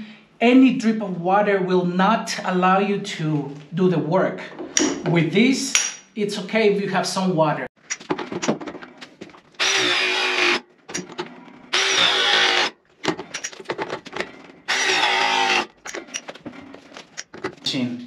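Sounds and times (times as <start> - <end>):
clicks and knocks of tool handling: 7.8 - 9.5, 10.9 - 11.4, 13.0 - 14.6, 15.7 - 17.6
press tool motor running: 9.6 - 11.1, 11.7 - 12.8, 14.7 - 15.7.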